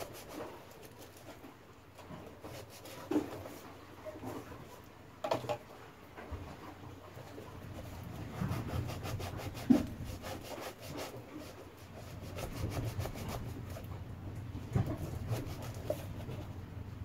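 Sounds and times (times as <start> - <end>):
knife scraping foam: 0.0 - 3.7, 7.8 - 13.9, 14.8 - 16.5.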